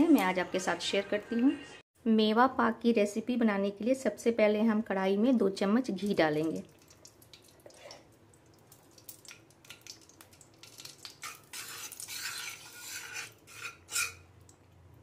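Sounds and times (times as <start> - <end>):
spoon scraping a metal pan: 10.8 - 14.3.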